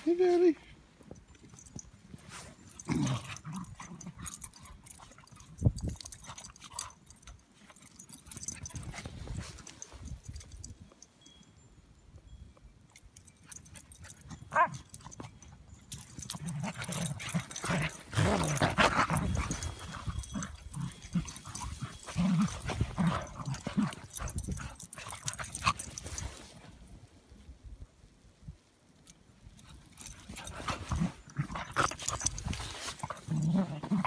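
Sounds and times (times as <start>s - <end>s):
dogs play growling: 2.1s - 9.9s, 13.8s - 26.6s, 29.8s - 34.0s
scuffling in crunching snow: 8.8s - 10.2s, 30.2s - 34.0s.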